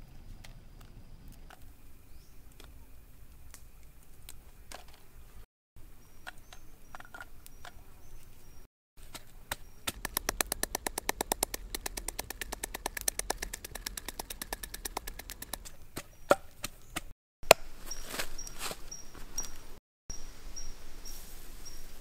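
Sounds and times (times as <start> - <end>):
pestle pounding in wooden mortar: 9.9 - 17.1.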